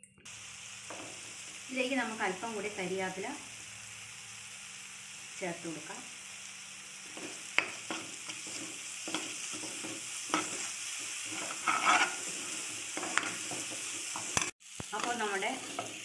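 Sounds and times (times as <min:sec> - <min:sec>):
paste sizzling in hot oil: 0:00.3 - 0:16.0
metal spoon scraping pan: 0:07.2 - 0:16.0.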